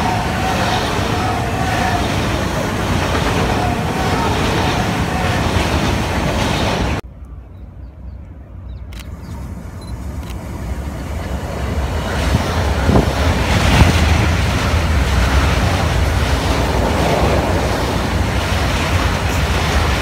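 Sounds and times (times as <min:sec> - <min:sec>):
train wheels rumbling on rail: 0:00.0 - 0:07.0, 0:08.9 - 0:20.0
wind buffeting microphone: 0:09.1 - 0:20.0.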